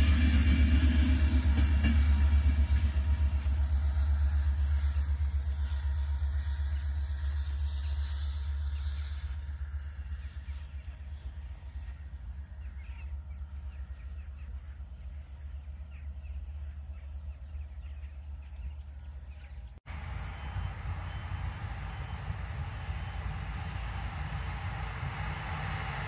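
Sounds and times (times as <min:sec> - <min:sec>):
diesel locomotive and train rumbling: 0:00.0 - 0:26.0.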